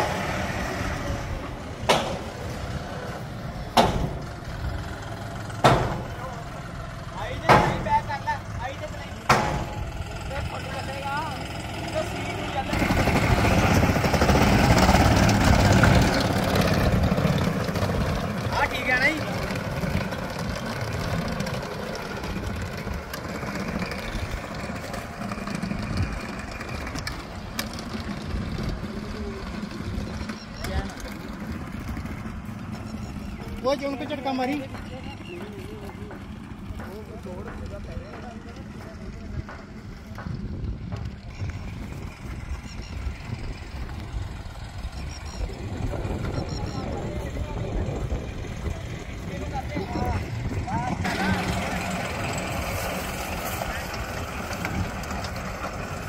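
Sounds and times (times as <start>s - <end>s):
shredder engine running: 0.0s - 37.9s, 38.5s - 56.0s
sharp knock: 1.9s - 2.3s, 3.8s - 4.2s, 5.6s - 6.1s, 7.5s - 7.9s, 9.3s - 9.8s.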